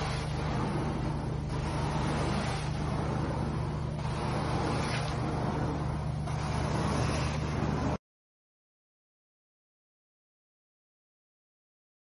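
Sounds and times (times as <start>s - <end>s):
extraction machine drone: 0.0s - 8.0s.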